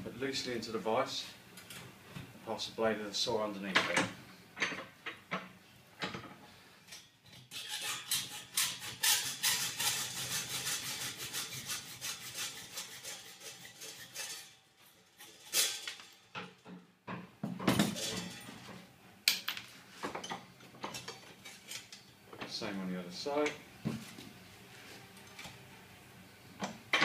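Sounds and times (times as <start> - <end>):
hacksaw cutting steel: 7.4 - 16.1
metal knocks and clatters: 15.2 - 18.8.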